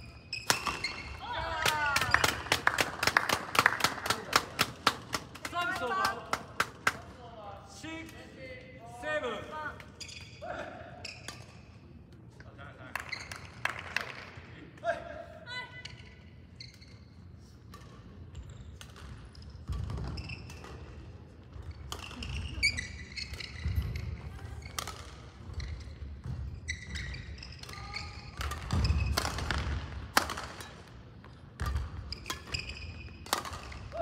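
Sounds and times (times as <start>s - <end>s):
sneakers squeaking on court floor: 0.0s - 1.4s, 9.8s - 12.0s, 15.8s - 30.0s, 30.6s - 34.0s
rackets striking shuttlecock: 0.3s - 1.2s, 27.6s - 31.0s, 31.6s - 34.0s.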